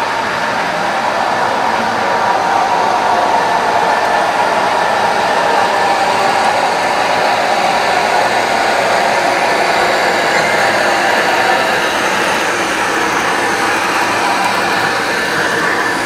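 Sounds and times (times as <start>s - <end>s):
wheels rolling on rails: 0.0s - 16.0s
model train motor whirring: 4.2s - 16.0s.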